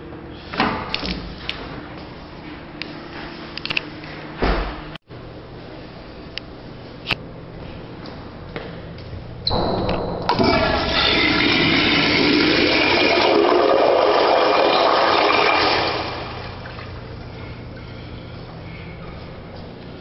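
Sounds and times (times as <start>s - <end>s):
toilet flushing: 10.3s - 17.0s.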